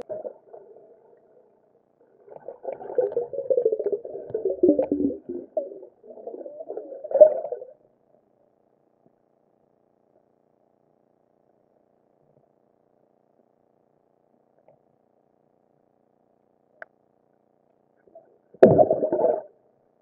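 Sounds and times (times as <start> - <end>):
muffled underwater moans: 2.3 - 7.8.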